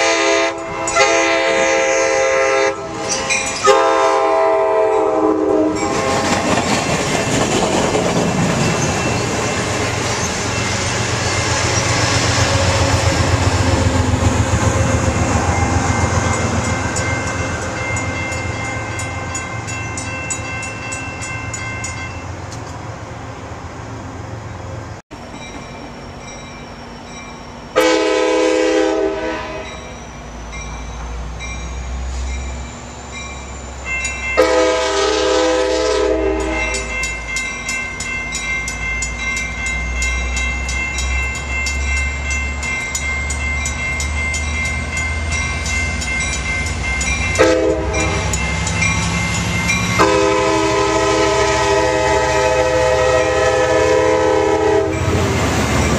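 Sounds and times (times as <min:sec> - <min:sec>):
train horn blast: 0:00.0 - 0:06.4, 0:27.8 - 0:29.9, 0:34.4 - 0:36.9, 0:47.4 - 0:48.3, 0:50.0 - 0:55.2
passenger train rolling past: 0:00.0 - 0:55.9
locomotive engine rumble: 0:00.6 - 0:55.9.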